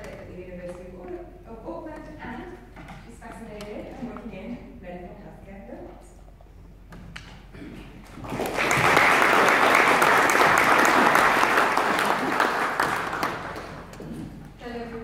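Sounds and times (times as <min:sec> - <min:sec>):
audience applauding: 0:08.1 - 0:14.0.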